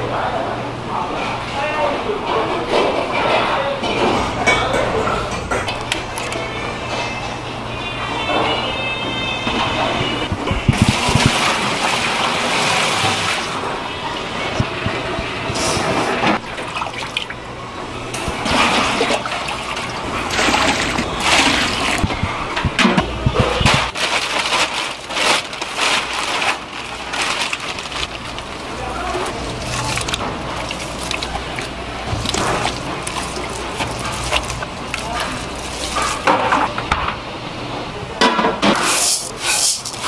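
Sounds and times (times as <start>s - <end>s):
plastic bag rustling: 9.8s - 13.7s, 18.2s - 36.9s, 38.7s - 40.0s
broth sloshing in a pot: 10.3s - 36.8s.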